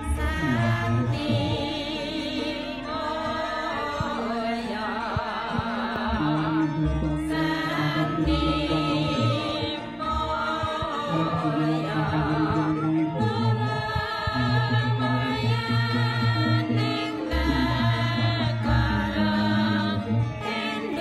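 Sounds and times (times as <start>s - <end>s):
low steady instrumental tones: 0.0s - 21.0s
singer holding wavering notes: 0.0s - 21.0s.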